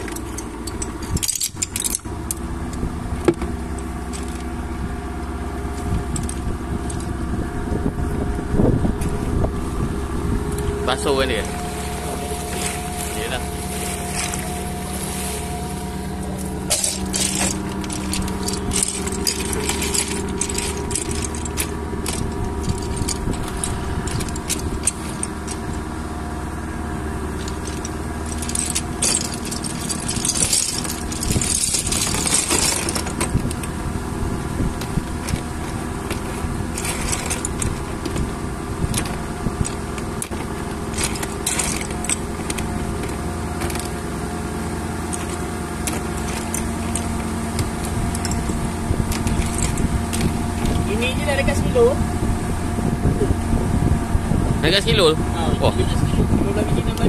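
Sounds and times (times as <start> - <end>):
clam shells clattering: 0.0 - 2.5, 3.2 - 4.8, 11.0 - 26.0, 27.3 - 33.8, 34.7 - 51.5
boat engine running: 0.0 - 57.0.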